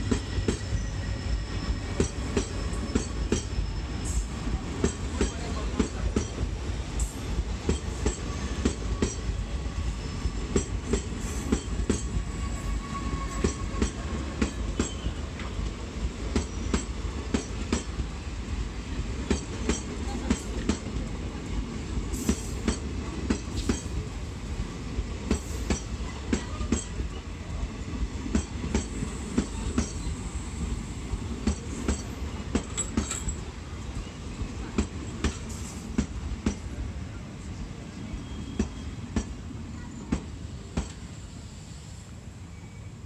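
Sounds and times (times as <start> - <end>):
faint high squeal: 0.0 - 4.3, 12.3 - 14.2, 38.1 - 39.0, 42.4 - 43.0
train coaches rumbling: 0.0 - 43.0
wheels clicking over rail joints: 31.4 - 34.0.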